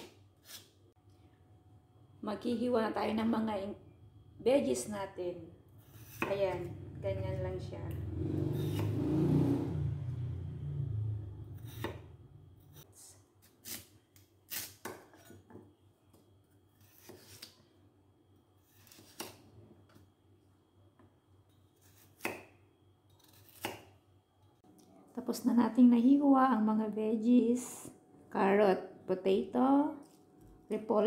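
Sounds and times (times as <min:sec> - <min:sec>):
low hum: 0:01.0 - 0:13.3
knife chopping on a cutting board: 0:06.0 - 0:06.5, 0:08.6 - 0:09.0, 0:11.6 - 0:12.1, 0:21.8 - 0:22.6, 0:23.2 - 0:23.9.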